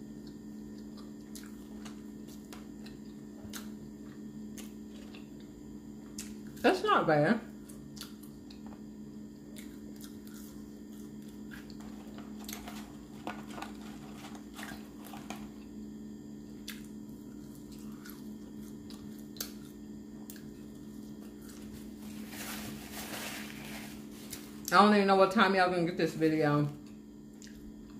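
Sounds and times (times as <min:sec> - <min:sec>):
steady low hum: 0:00.0 - 0:27.9
person chewing fries: 0:00.1 - 0:06.6, 0:07.6 - 0:13.1, 0:13.7 - 0:15.7, 0:16.5 - 0:22.2.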